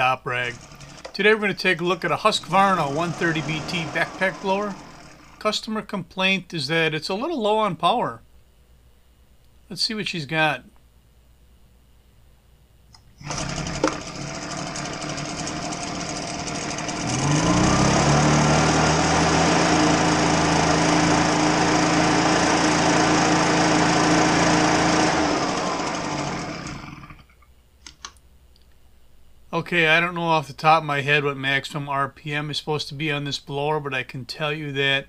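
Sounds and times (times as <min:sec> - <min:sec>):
leaf blower engine revving: 0:00.0 - 0:05.7, 0:13.2 - 0:27.3.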